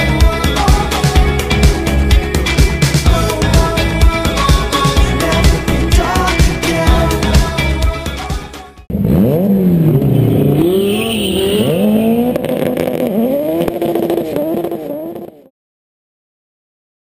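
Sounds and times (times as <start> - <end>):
car engine accelerating hard: 8.9 - 15.5.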